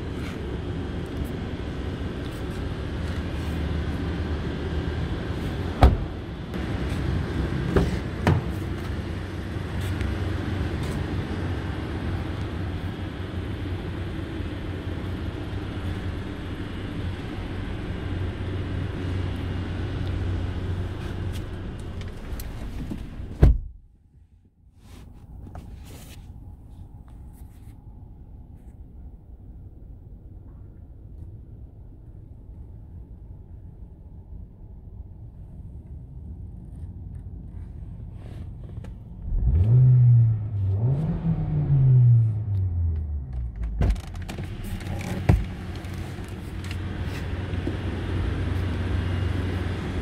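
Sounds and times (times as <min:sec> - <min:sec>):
low rumble with hum: 0:00.0 - 0:50.0
car door thud: 0:05.8 - 0:06.2, 0:07.7 - 0:08.6, 0:23.4 - 0:23.8.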